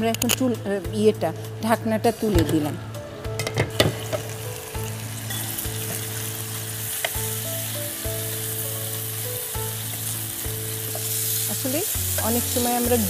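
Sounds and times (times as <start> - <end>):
chicken sizzling in oil: 3.7 - 13.0.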